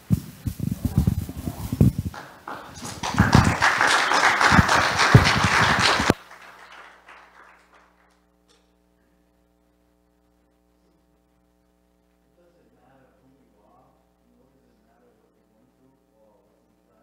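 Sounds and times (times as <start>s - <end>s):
faint steady hum: 0.0s - 17.0s
congregation applauding: 2.1s - 8.2s.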